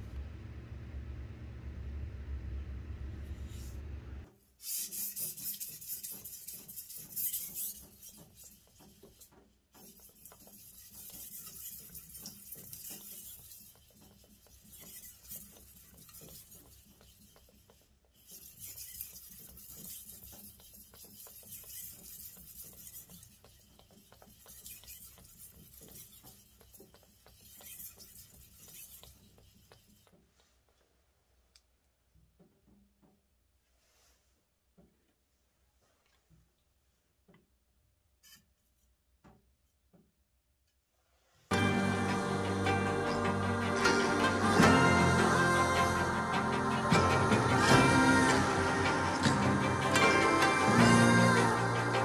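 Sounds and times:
knife grinding on whetstone: 4.6 - 30.0, 41.5 - 52.0.

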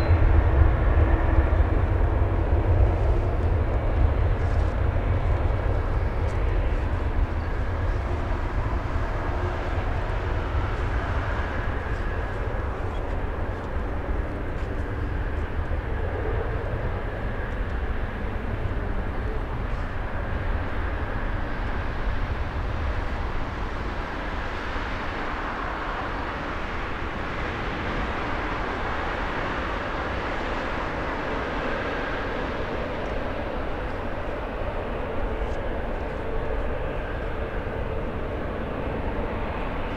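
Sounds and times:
jet engines roaring at takeoff: 0.0 - 39.9.

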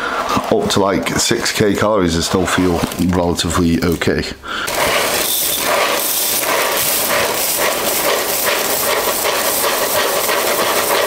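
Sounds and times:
cereal pouring into bowl: 4.7 - 11.0.

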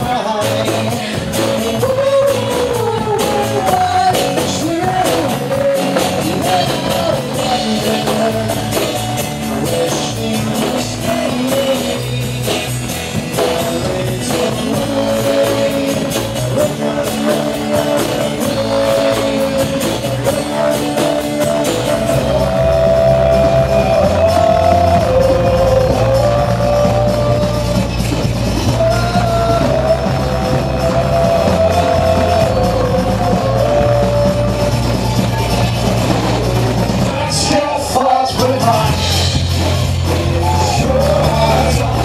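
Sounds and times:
live rock band playing: 0.0 - 42.0
person singing: 0.0 - 42.0.

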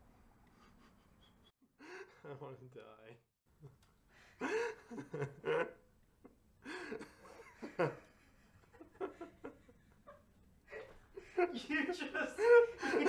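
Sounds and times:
people laughing and giggling: 4.4 - 5.8, 6.7 - 11.7, 12.3 - 13.0.

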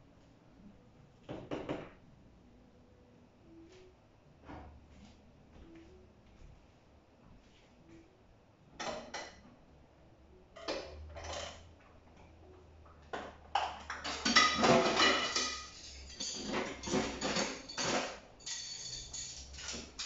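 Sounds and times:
dishes clattering in sink: 13.1 - 20.0.

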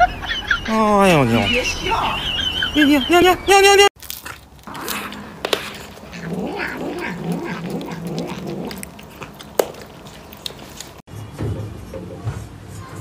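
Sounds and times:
cat growly yowls: 4.8 - 9.3.

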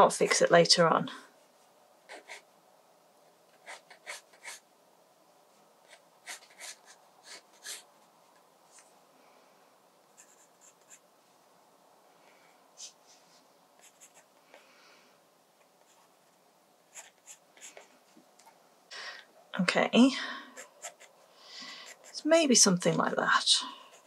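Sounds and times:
pencil scratching on paper: 2.1 - 2.4, 3.5 - 4.6, 5.8 - 7.9, 10.2 - 11.0, 13.8 - 14.3, 16.9 - 17.9, 20.6 - 22.3, 23.8 - 24.0.

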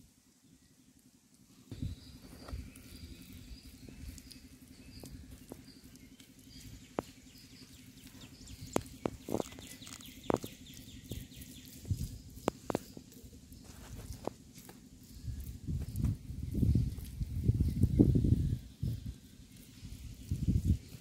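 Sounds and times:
steady low hum: 0.0 - 21.0
high chirping: 1.7 - 21.0
hands squishing wet paste: 2.2 - 16.0.

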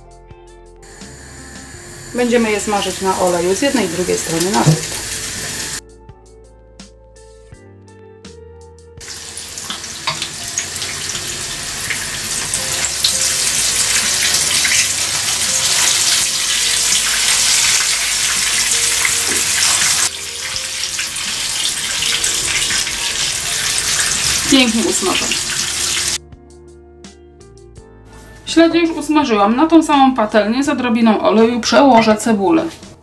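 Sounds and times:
fish frying in hot oil: 0.9 - 5.8, 9.0 - 26.2.

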